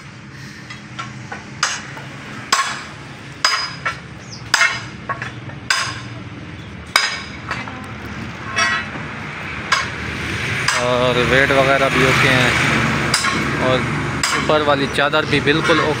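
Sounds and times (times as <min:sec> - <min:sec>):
hammer striking metal: 0:00.7 - 0:06.2, 0:06.9 - 0:07.8, 0:08.4 - 0:09.0, 0:09.6 - 0:10.0, 0:10.6 - 0:11.1, 0:13.0 - 0:14.7.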